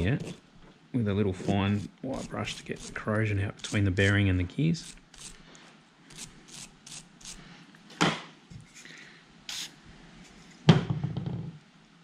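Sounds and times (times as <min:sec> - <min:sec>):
small brush scrubbing metal: 0:00.0 - 0:00.5, 0:01.2 - 0:07.4
knock with handling rattle: 0:10.7 - 0:11.5.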